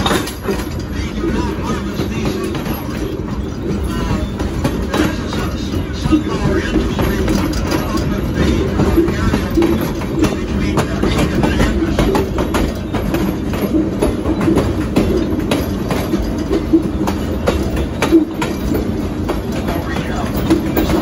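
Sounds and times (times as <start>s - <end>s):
train wheels rumbling on rails: 0.0s - 21.0s
wheels clicking on track: 0.0s - 21.0s.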